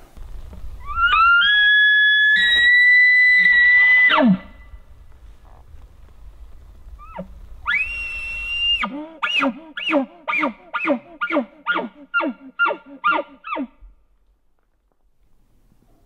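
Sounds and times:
elk call whistle: 0.8 - 4.6, 7.0 - 13.7.

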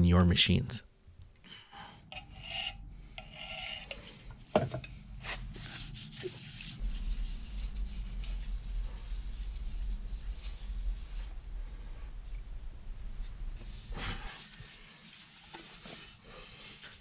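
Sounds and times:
low hum: 4.8 - 14.3
gloved hand rubbing metal: 5.2 - 11.5.

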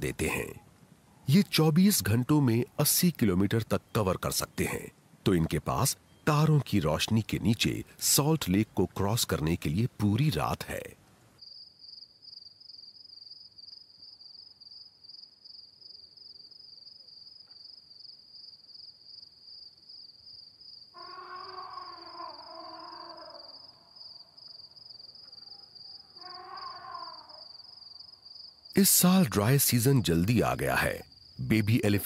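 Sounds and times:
crickets trilling: 11.4 - 32.0
howl-like animal call: 21.0 - 23.7, 25.4 - 27.4.

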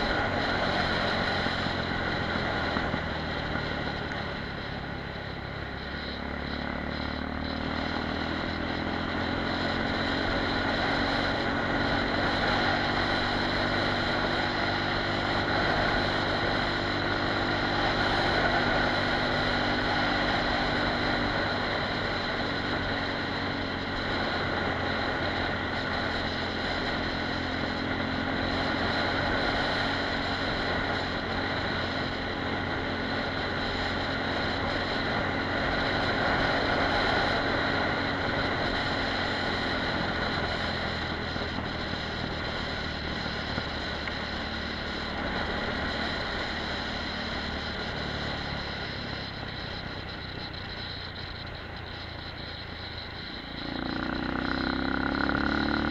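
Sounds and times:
wind noise: 0.0 - 5.6
motorcycle engine running: 0.0 - 55.9
road noise: 0.0 - 55.9.

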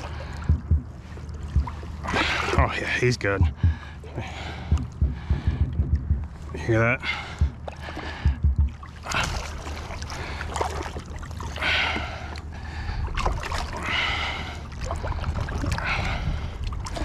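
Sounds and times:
steady low hum: 0.0 - 17.0
water sloshing and splashing: 0.0 - 17.0.

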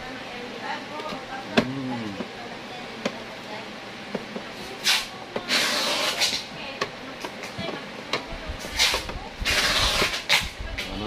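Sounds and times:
short scraping rubs: 8.6 - 10.5.

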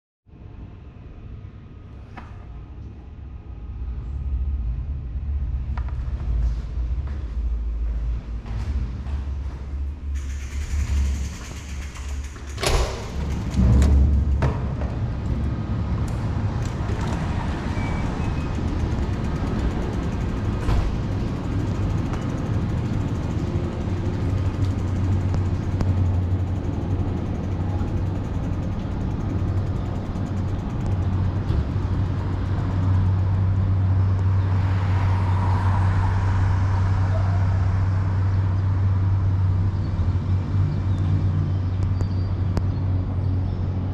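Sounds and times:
street traffic: 0.3 - 43.9
metal push-bar door clacking open: 10.2 - 14.8
door shutting with heavy thud: 11.7 - 15.1.

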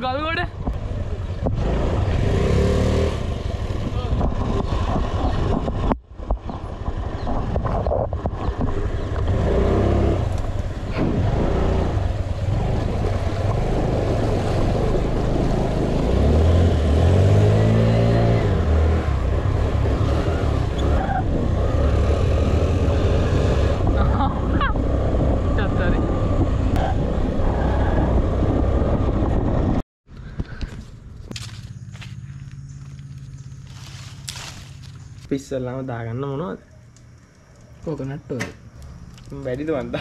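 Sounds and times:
vehicle engine revving: 0.7 - 5.8, 6.8 - 29.8.

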